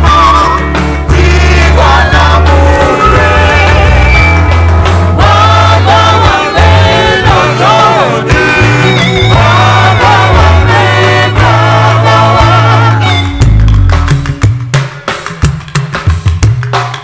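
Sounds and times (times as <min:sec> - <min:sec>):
amplified instrumental backing: 0:00.0 - 0:17.0
choir singing a hymn: 0:01.1 - 0:04.2, 0:05.2 - 0:13.1.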